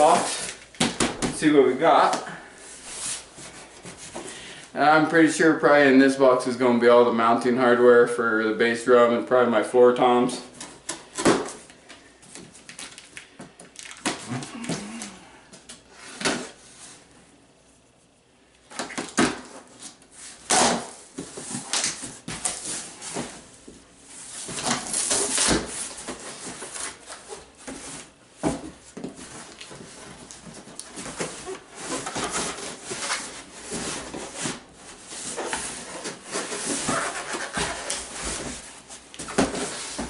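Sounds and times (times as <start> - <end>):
boxes scraping and knocking: 0.0 - 0.6, 24.2 - 40.0.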